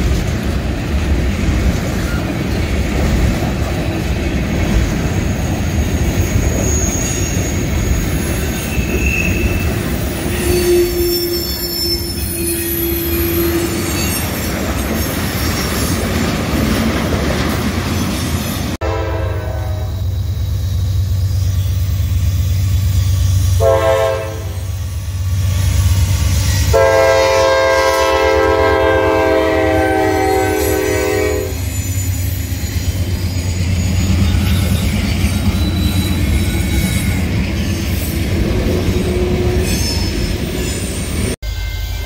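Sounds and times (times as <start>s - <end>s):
train air horn blasts: 10.3s - 14.0s, 18.8s - 20.2s, 23.5s - 24.8s, 26.6s - 31.7s.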